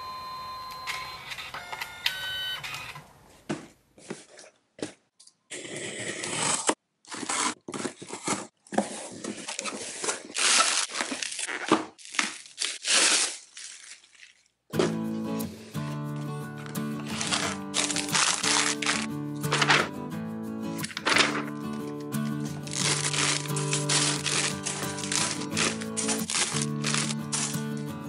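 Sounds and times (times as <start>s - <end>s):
knife slitting packing tape: 9.6s - 13.8s, 17.0s - 19.8s, 22.5s - 27.8s
bubble wrap crackling: 9.9s - 14.6s, 17.0s - 19.8s, 20.9s - 27.9s.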